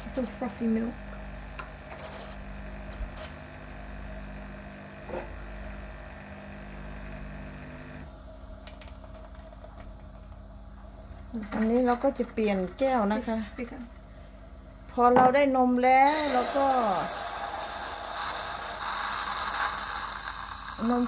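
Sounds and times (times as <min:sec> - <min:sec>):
coffee machine pump running: 0:00.0 - 0:08.1, 0:16.0 - 0:21.0.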